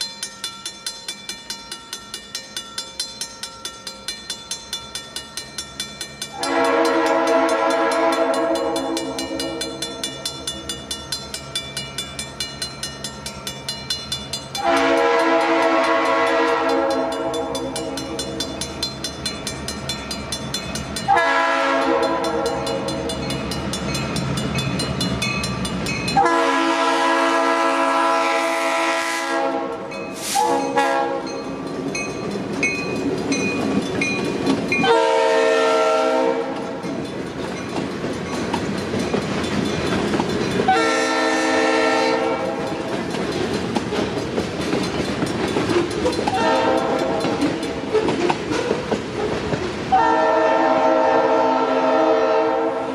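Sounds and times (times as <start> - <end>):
crossing bell ringing: 0.0 - 48.2
train wheels clattering on rails: 0.0 - 52.4
train horn blasts: 6.3 - 9.9, 14.6 - 18.4, 21.1 - 23.1, 26.2 - 31.4, 34.8 - 36.8, 40.7 - 42.8, 46.3 - 47.5, 49.9 - 52.9.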